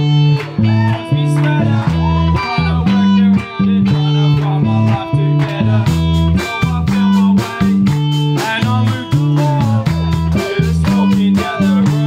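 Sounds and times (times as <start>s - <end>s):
bass guitar line: 0.0s - 12.0s
electric guitar: 0.0s - 12.0s
drums and cymbal hits: 5.7s - 12.0s.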